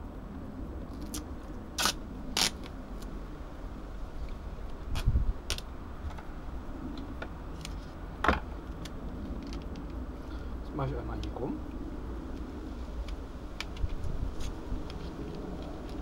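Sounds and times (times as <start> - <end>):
duct tape ripping off roll: 0.9 - 2.8, 4.9 - 5.7.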